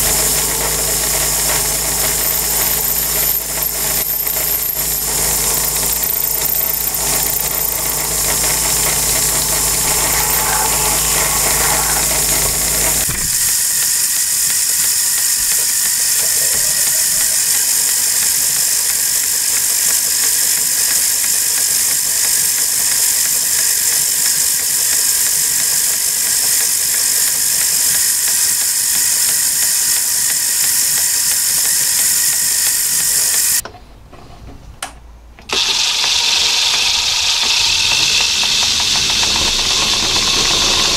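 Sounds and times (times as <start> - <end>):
drill cutting metal: 0.0 - 33.6, 35.5 - 40.9
lathe running: 0.0 - 33.6, 35.5 - 40.9
low hum: 7.5 - 13.4.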